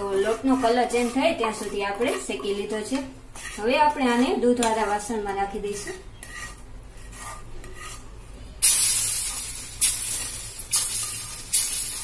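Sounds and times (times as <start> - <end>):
spatula scraping a pan: 0.0 - 12.0
sizzling hisses: 8.6 - 12.0.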